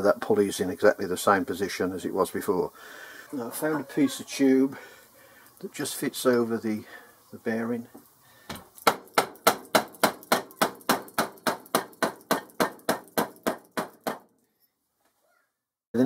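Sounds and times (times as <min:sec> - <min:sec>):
hammer tapping on metal tube: 0:08.5 - 0:14.2.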